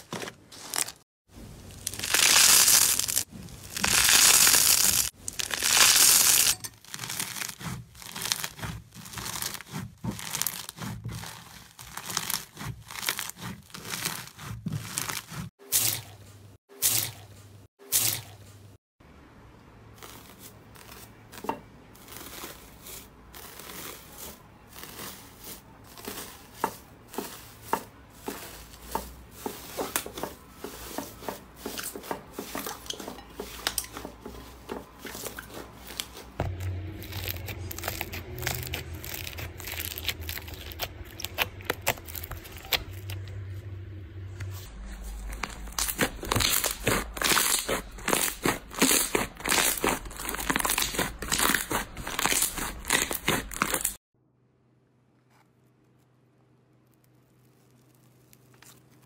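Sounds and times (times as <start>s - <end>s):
foil crinkling and tearing: 0.0s - 1.0s, 1.6s - 16.2s, 20.0s - 27.6s, 33.7s - 43.4s, 44.9s - 54.0s, 56.8s - 59.0s
hands kneading slime: 1.8s - 15.5s, 19.9s - 43.4s, 44.5s - 54.0s.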